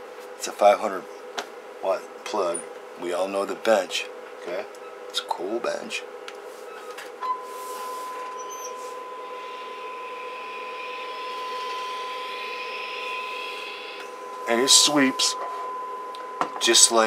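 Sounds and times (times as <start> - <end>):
electrical hum: 0.0 - 17.0
steady test tone: 7.2 - 17.0.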